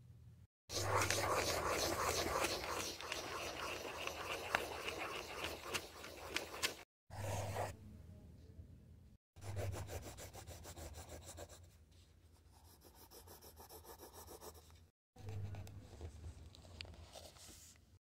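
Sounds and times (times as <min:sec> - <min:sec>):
pencil scribbling on paper: 0:00.7 - 0:07.8, 0:09.4 - 0:11.7, 0:12.3 - 0:15.7.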